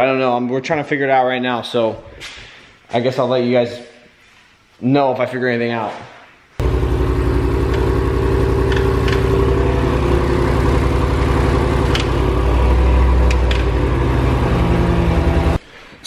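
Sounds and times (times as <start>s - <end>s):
car engine idling: 6.6s - 15.6s.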